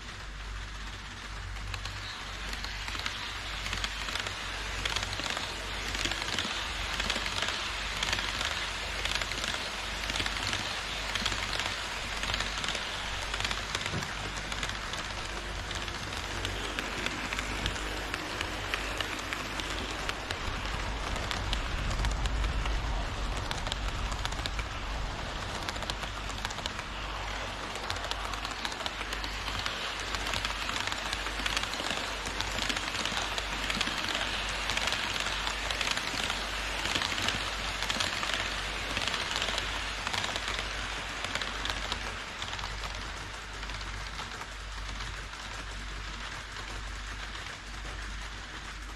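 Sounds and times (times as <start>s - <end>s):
model train wheels rattling: 0.0s - 48.9s
deep rumble: 11.8s - 30.3s.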